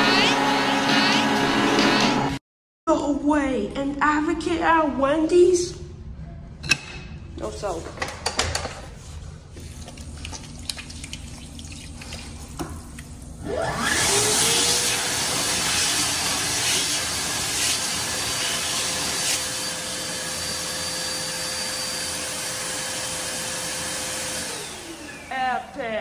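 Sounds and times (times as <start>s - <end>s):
hand dryer motor whine: 0.0s - 2.4s, 13.4s - 26.0s.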